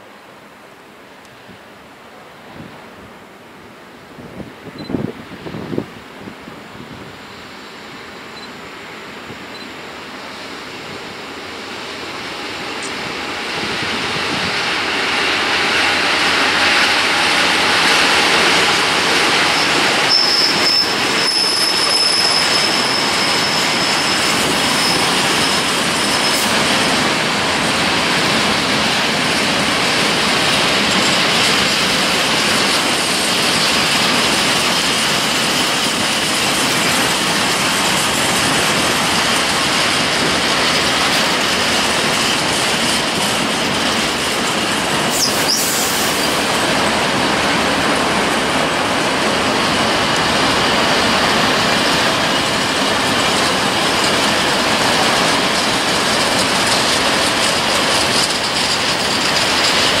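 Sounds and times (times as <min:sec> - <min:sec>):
freight train wheels clattering: 0:12.2 - 1:00.0
high wheel squeal: 0:19.4 - 0:26.5, 0:45.1 - 0:46.5.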